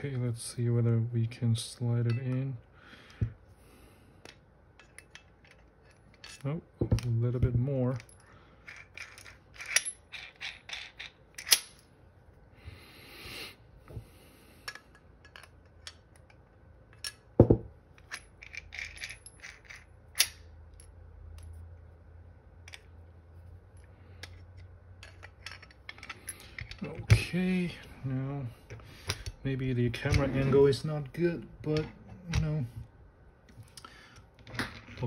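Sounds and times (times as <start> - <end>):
metallic clicks and clinks: 7.9 - 11.8, 18.0 - 21.5, 23.8 - 27.3.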